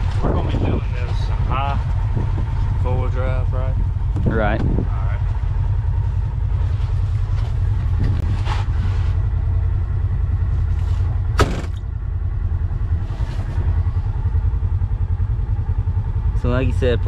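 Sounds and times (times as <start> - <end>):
vehicle engine droning: 0.0 - 17.0
sharp knock: 11.4 - 11.8.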